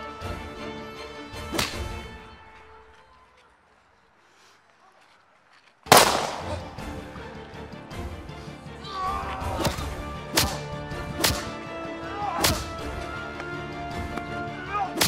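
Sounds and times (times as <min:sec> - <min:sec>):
dramatic background music: 0:00.0 - 0:02.8, 0:05.9 - 0:15.0
punch sound effects: 0:05.9 - 0:06.8.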